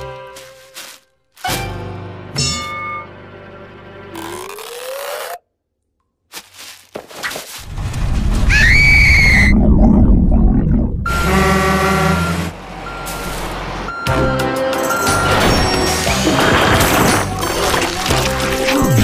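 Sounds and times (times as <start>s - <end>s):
cartoon rising squeak: 4.2s - 5.4s, 8.4s - 9.6s
loud rumble: 7.7s - 11.9s
cartoon high scream: 8.5s - 9.5s
truck horn blaring: 11.1s - 13.4s.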